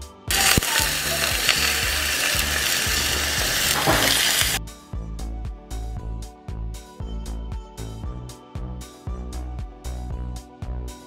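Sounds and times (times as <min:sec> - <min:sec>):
background music: 0:00.0 - 0:11.0
chicken sizzling in oil: 0:00.3 - 0:04.6.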